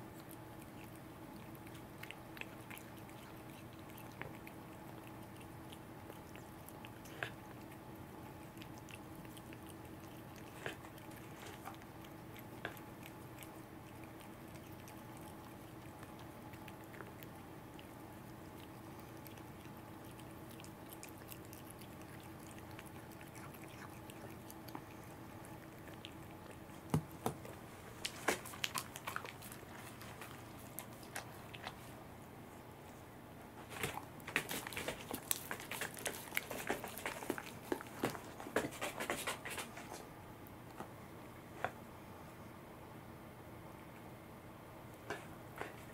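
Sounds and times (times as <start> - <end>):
cat chewing and licking: 0.0 - 33.0, 33.6 - 40.8
faint steady hum: 0.0 - 45.9
dog licking fingers: 33.9 - 39.8.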